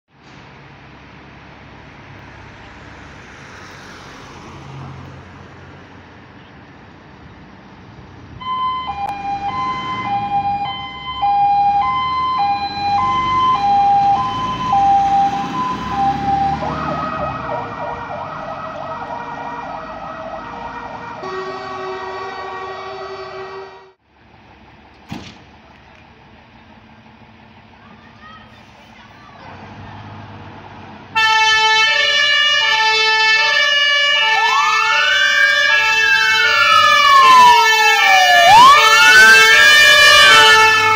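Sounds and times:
second siren tone: 0:08.4 - 0:23.7
two-tone siren: 0:08.4 - 0:24.0, 0:31.2 - 0:40.9.

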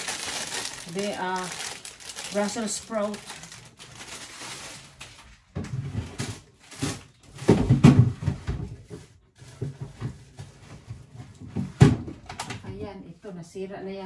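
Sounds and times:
plastic packaging rustling: 0:00.0 - 0:07.7
groceries bumping in fridge: 0:00.0 - 0:10.9.

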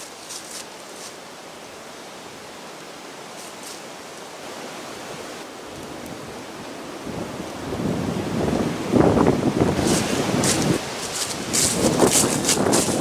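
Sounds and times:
footsteps crunching dry leaves: 0:00.0 - 0:01.2, 0:03.3 - 0:03.9, 0:09.7 - 0:13.0
wind in bare woods: 0:00.0 - 0:13.0.

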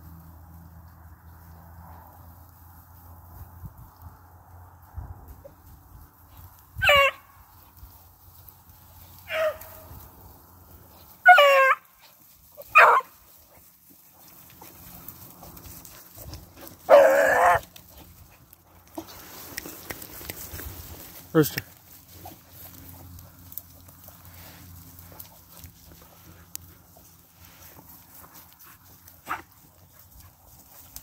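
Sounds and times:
hounds baying: 0:06.8 - 0:07.3, 0:09.0 - 0:10.1, 0:10.7 - 0:19.7, 0:21.9 - 0:31.0.

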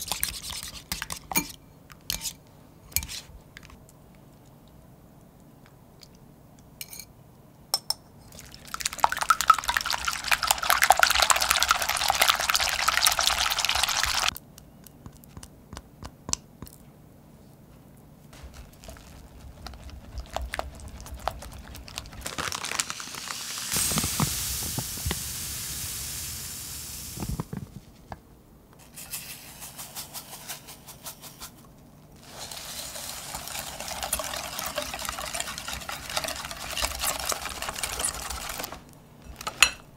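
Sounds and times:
steady hiss: 0:22.9 - 0:28.1
wire whisk beating in glass bowl: 0:33.8 - 0:38.8.

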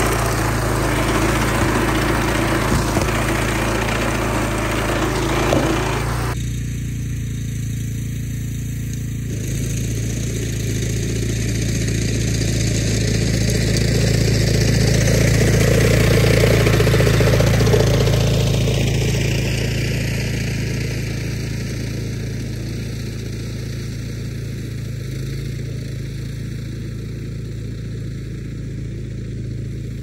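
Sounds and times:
tractor engine running under load: 0:00.0 - 0:30.0.

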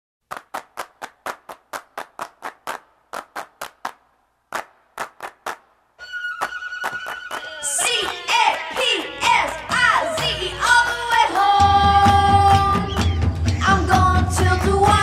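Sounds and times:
rhythmic handclaps: 0:00.2 - 0:15.0
music: 0:06.0 - 0:15.0.

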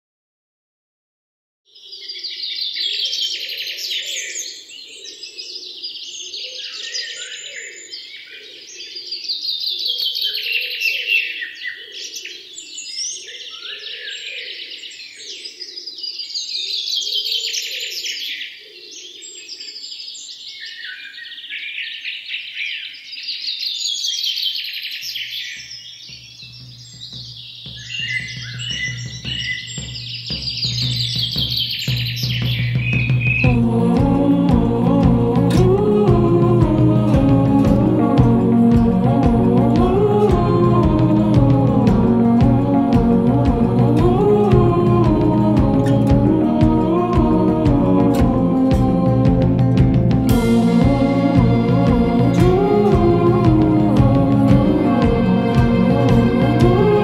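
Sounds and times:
birds chirping and twittering: 0:01.7 - 0:34.6
low steady music note: 0:33.5 - 0:57.0.

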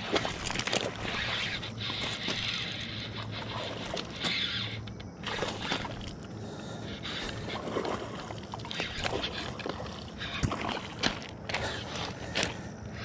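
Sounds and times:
fish splashing in water: 0:05.2 - 0:06.2, 0:07.2 - 0:12.1.

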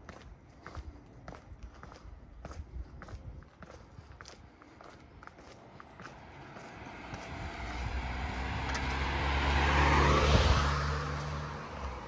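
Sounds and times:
vehicle driving past: 0:05.9 - 0:12.0.

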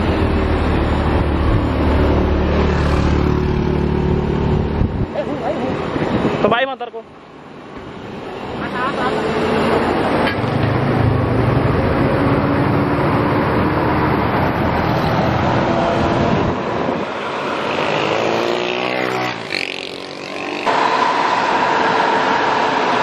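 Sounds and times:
bus diesel engine running hard: 0:00.0 - 0:06.6, 0:07.2 - 0:17.8, 0:20.6 - 0:23.0
bus passing whoosh: 0:00.0 - 0:06.6, 0:07.2 - 0:23.0.

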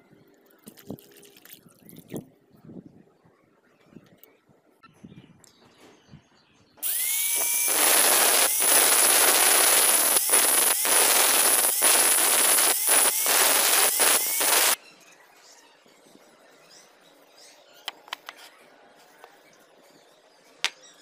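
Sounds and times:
angle grinder grinding metal: 0:06.8 - 0:14.8.

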